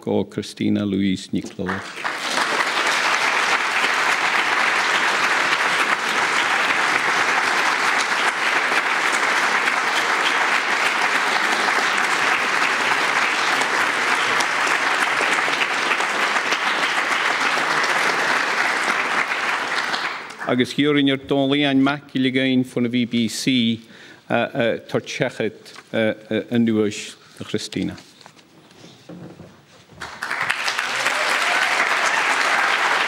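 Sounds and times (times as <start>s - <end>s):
audience applauding: 1.6s - 20.7s, 30.0s - 33.0s.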